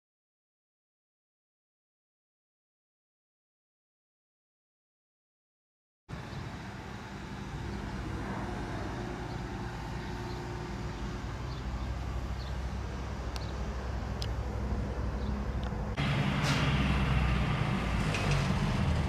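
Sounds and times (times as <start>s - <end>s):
road traffic rumble: 6.1s - 19.0s.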